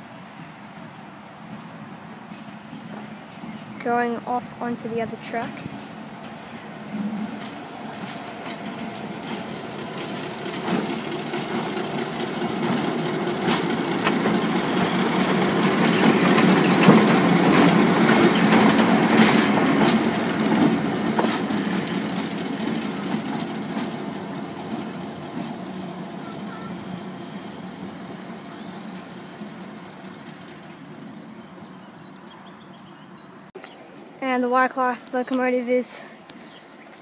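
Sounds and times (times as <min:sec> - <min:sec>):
diesel locomotive engine: 0:00.0 - 0:36.8
wheels clicking over rail joints: 0:04.8 - 0:32.2.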